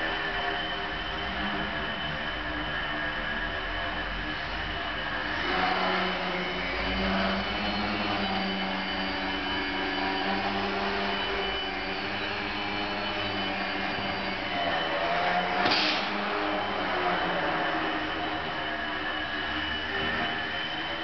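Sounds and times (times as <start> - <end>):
model plane motor whine: 0.0 - 21.0.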